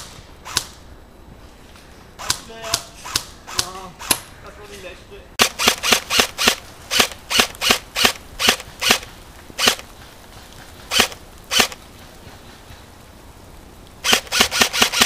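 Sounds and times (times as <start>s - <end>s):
airsoft rifle shots: 0.0s - 0.8s, 2.2s - 4.3s, 5.4s - 9.9s, 10.9s - 11.8s, 14.0s - 15.0s.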